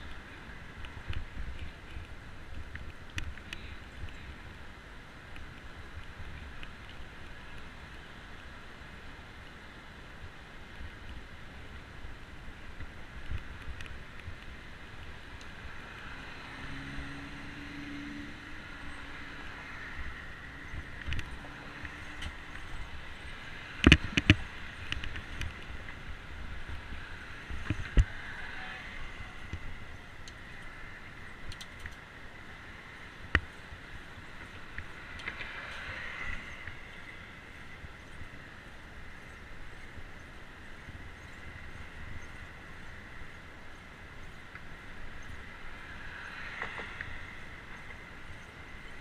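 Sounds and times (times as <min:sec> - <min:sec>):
highway traffic noise: 0:00.0 - 0:49.0
wind on microphone: 0:10.8 - 0:31.8.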